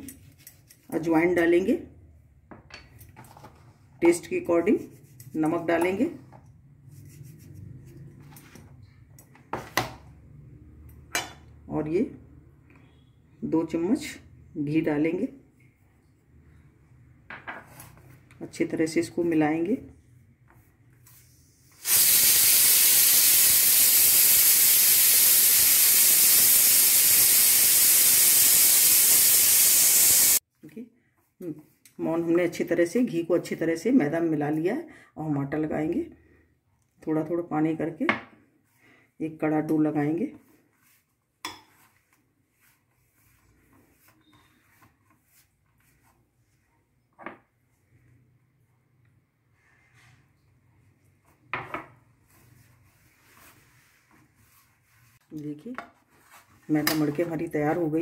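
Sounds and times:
dough rubbing in metal bowl: 0:04.5 - 0:06.1, 0:06.8 - 0:08.2, 0:40.0 - 0:46.6, 0:52.2 - 0:55.2
loud steady hiss: 0:21.8 - 0:30.4.

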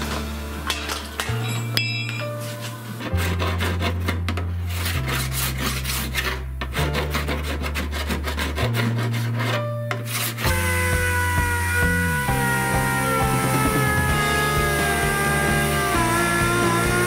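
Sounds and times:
background music with bass: 0:00.0 - 0:17.0
scraping on metal panel: 0:00.7 - 0:10.5.

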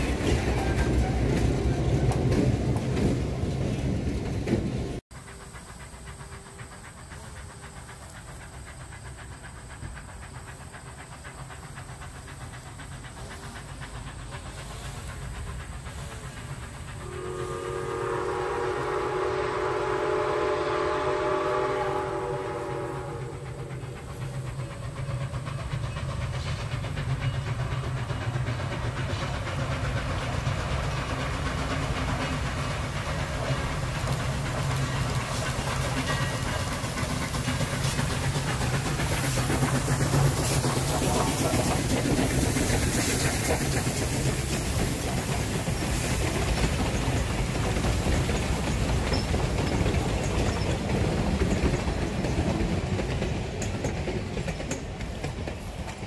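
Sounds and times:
diesel locomotive running: 0:00.0 - 0:56.0
low rumble of train: 0:00.0 - 0:56.0
steam locomotive chime whistle: 0:17.0 - 0:24.1.

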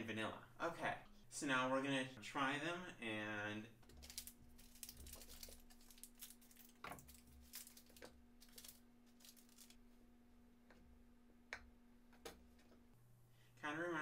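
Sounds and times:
wrapper crinkling and rustling: 0:03.8 - 0:09.8.

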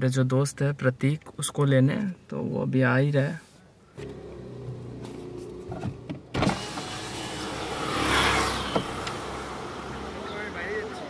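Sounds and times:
car low hum: 0:03.8 - 0:11.0
electric window motor: 0:04.0 - 0:10.1.

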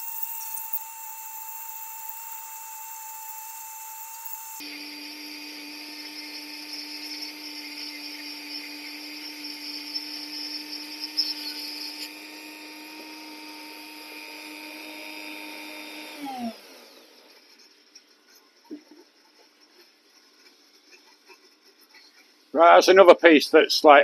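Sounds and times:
tool whine spinning down: 0:00.0 - 0:17.7
rotary tool grinding wood: 0:00.0 - 0:22.3.

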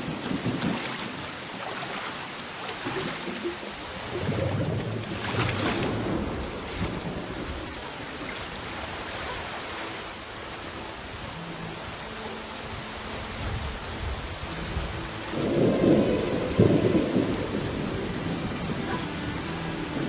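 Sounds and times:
heavy rain pouring: 0:00.0 - 0:20.0
low thunder rumble: 0:02.8 - 0:08.4, 0:13.5 - 0:20.0.

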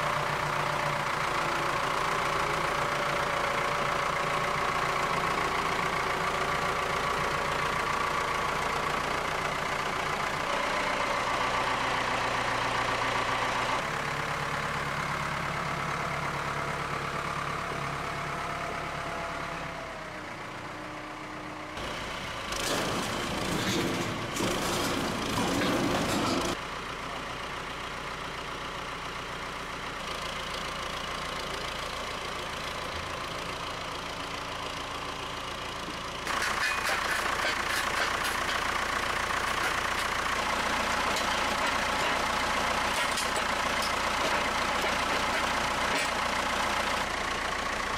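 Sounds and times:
tractor diesel engine running: 0:00.0 - 0:47.9
loud rough rattling: 0:22.5 - 0:26.6, 0:36.2 - 0:47.5.

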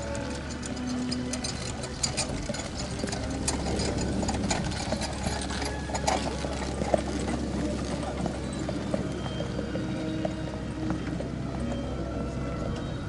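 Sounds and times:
carriage and harness rattling: 0:00.0 - 0:09.0
hoofbeats on sand: 0:00.0 - 0:13.0.

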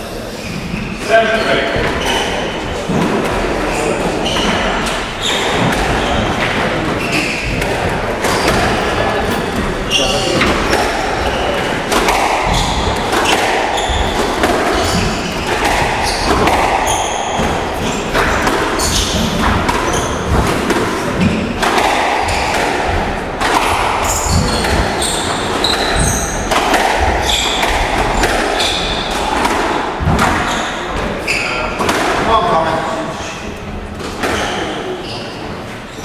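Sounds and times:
shoe squeaks: 0:00.3 - 0:02.6, 0:03.6 - 0:11.8, 0:12.4 - 0:20.4, 0:24.0 - 0:26.5, 0:27.2 - 0:29.2, 0:30.3 - 0:31.8, 0:34.3 - 0:36.0
squash ball cracking off rackets: 0:04.2 - 0:32.4.

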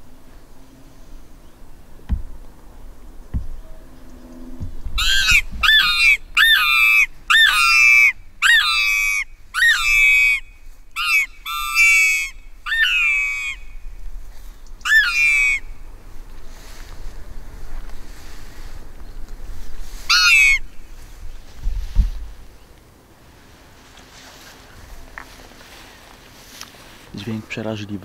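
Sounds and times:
predator call shrill squeals: 0:05.0 - 0:13.8, 0:14.8 - 0:15.8, 0:20.1 - 0:20.8.

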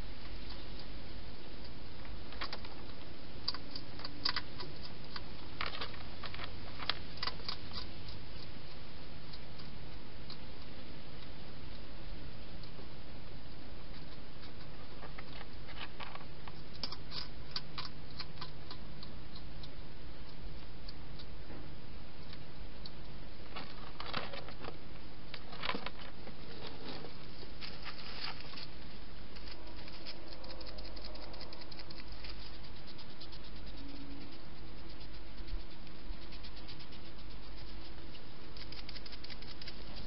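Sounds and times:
hedgehog chewing clicks: 0:03.4 - 0:08.5, 0:16.1 - 0:21.3, 0:29.3 - 0:40.0
steady hiss: 0:24.5 - 0:40.0.

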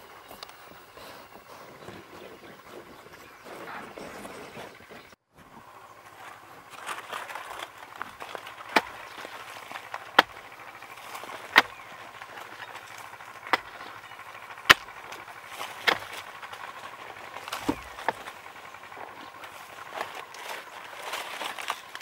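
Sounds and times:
soil crumbling and scraping: 0:00.0 - 0:22.0
hoe chopping into dry soil: 0:06.3 - 0:22.0.

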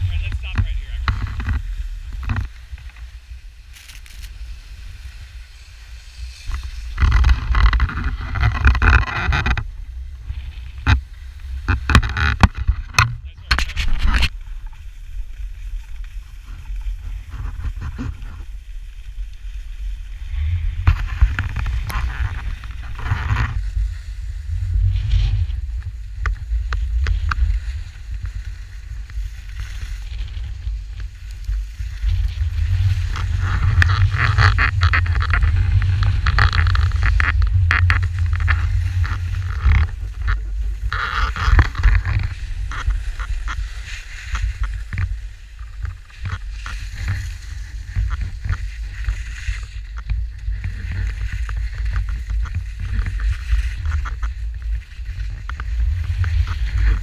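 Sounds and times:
skis scraping over packed snow: 0:00.0 - 0:57.0
wind rumbling on microphone: 0:00.0 - 0:57.0.

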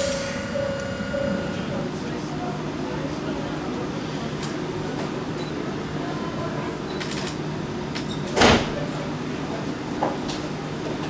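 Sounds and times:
short loud burst of noise: 0:00.0 - 0:02.4
electric train humming: 0:00.0 - 0:03.9.

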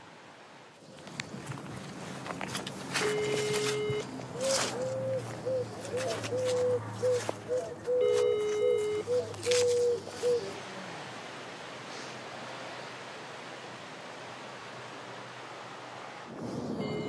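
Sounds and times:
phone ringing tone beep: 0:03.0 - 0:04.1, 0:08.0 - 0:09.1, 0:16.8 - 0:17.0
pigeon cooing: 0:03.2 - 0:10.8.

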